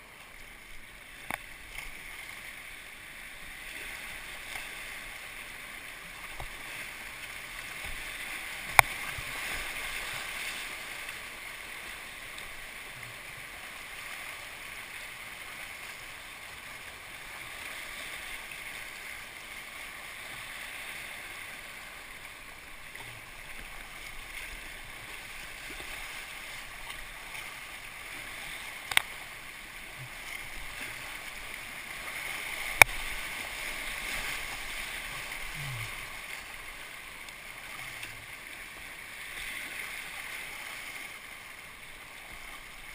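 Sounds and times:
whitewater rushing and splashing: 0.0s - 42.9s.

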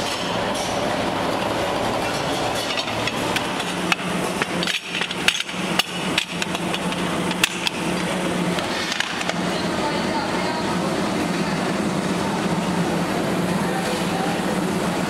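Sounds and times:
factory machinery hum: 0.0s - 15.0s
metal pans clanking together: 2.0s - 7.6s.

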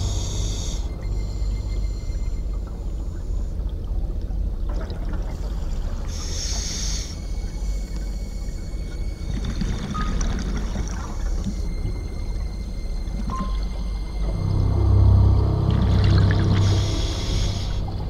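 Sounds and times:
underwater rumble and bubbles: 0.0s - 18.0s
scuba regulator hissing: 6.1s - 7.8s, 16.6s - 18.0s.

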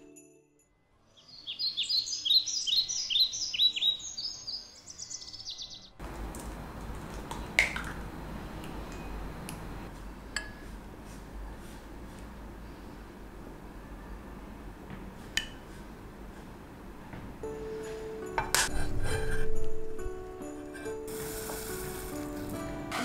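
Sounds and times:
songbird chirping: 1.0s - 6.0s.

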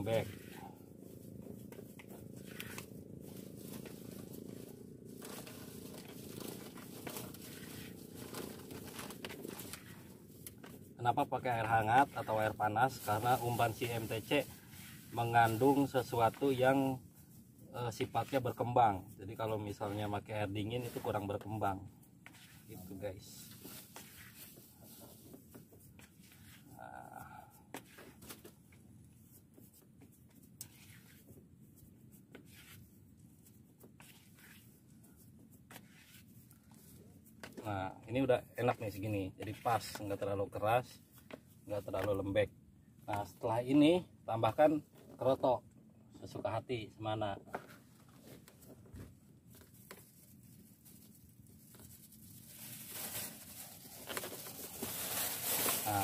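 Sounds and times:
hands kneading dough: 0.0s - 38.0s, 38.6s - 42.4s.

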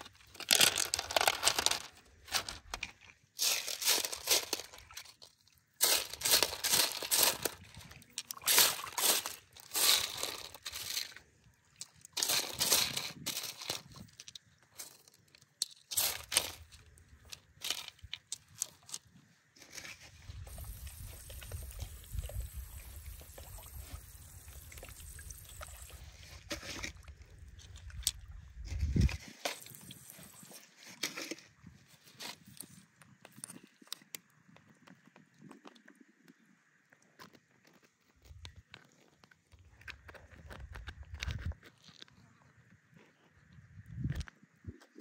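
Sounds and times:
gravel clattering in metal sieve: 0.3s - 2.8s, 3.4s - 5.2s, 5.8s - 11.2s, 12.2s - 14.1s, 15.9s - 16.6s.

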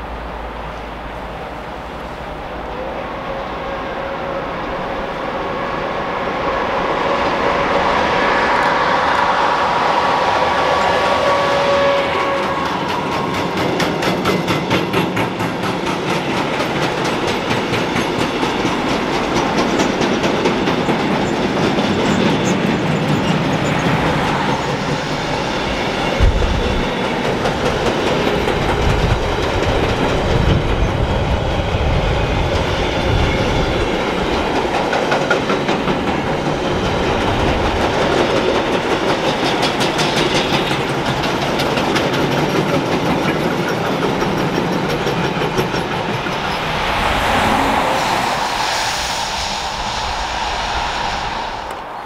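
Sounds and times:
train wagons rumbling on rails: 0.0s - 52.0s
clickety-clack over rail joints: 10.8s - 47.1s.

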